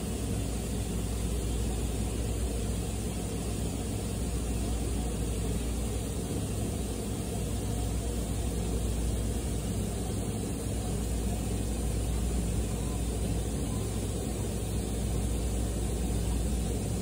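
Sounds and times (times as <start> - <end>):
low rumble with mechanical hum: 0.0 - 17.0.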